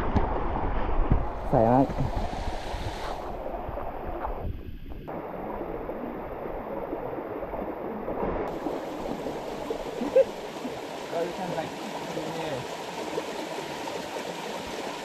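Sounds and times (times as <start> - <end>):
stream gurgling over rocks: 4.8 - 15.0.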